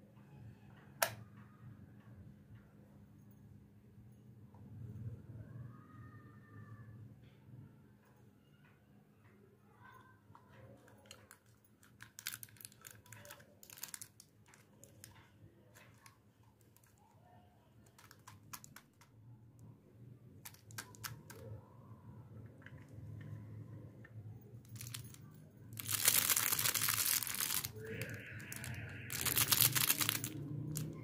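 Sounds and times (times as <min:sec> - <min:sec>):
plastic candy wrapper crinkling: 0:10.8 - 0:17.0, 0:17.8 - 0:19.1, 0:20.4 - 0:21.5, 0:24.7 - 0:31.0
small plastic clicks and taps: 0:17.9 - 0:19.2.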